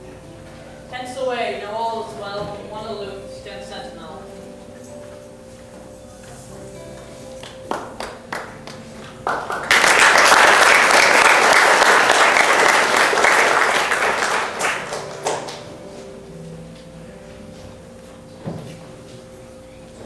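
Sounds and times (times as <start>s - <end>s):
audience applauding: 7.4s - 16.0s.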